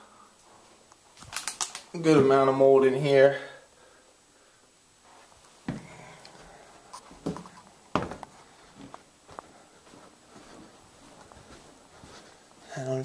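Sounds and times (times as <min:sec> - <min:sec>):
footsteps: 0:05.0 - 0:13.0.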